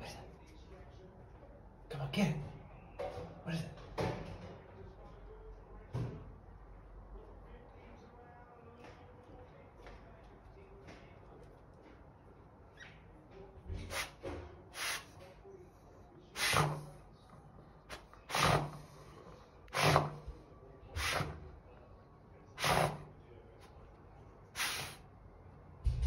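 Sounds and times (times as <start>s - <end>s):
dog sniffing and snuffling: 13.8s - 15.2s, 16.4s - 17.0s, 17.9s - 20.3s, 21.0s - 21.4s, 22.6s - 23.1s, 24.6s - 25.0s.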